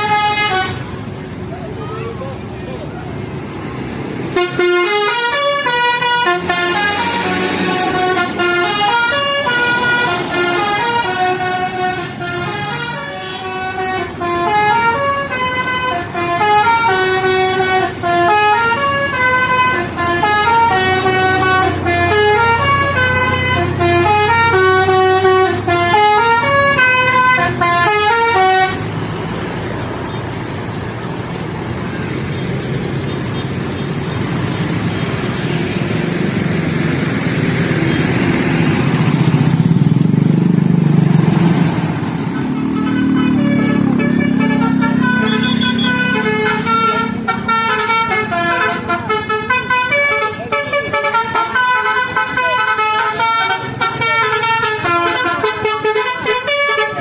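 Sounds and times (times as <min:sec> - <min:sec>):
musical bus horn tune: 0:00.0 - 0:01.2, 0:04.2 - 0:29.4, 0:42.2 - 0:57.0
road traffic and engines: 0:00.0 - 0:57.0.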